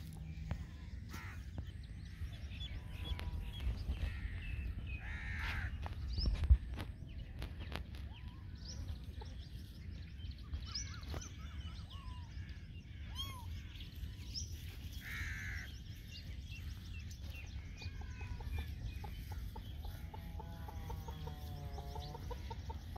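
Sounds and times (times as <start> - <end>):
birds chirping: 0.0 - 22.9
chickens clucking: 17.1 - 22.9.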